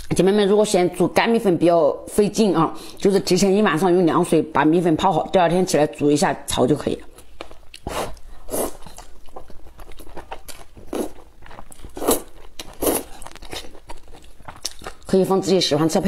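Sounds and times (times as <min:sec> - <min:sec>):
chewing: 0:07.4 - 0:15.1.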